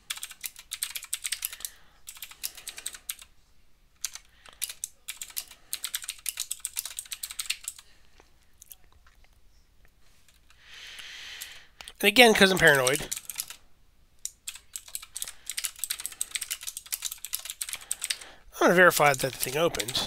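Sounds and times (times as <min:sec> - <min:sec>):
typing on a computer keyboard: 0:00.0 - 0:03.3, 0:04.0 - 0:07.8, 0:12.6 - 0:13.6, 0:14.2 - 0:18.3, 0:19.1 - 0:20.0.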